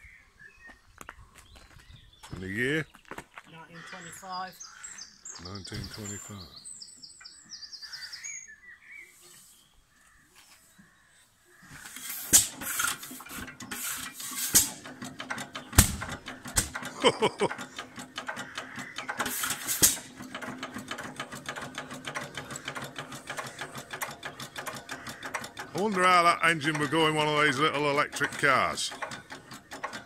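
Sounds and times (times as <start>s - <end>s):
flywheel turned by hand: 11.8s - 30.0s
petrol engine clattering: 11.9s - 30.0s
engine loud sharp bangs: 12.3s - 21.7s.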